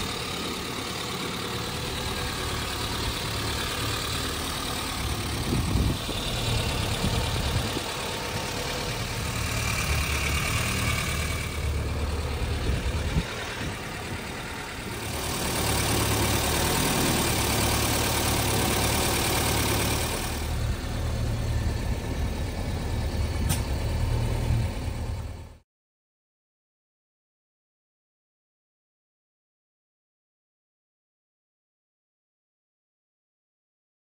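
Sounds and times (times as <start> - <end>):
car engine idling: 0.0 - 25.6
sharp click: 23.4 - 23.8.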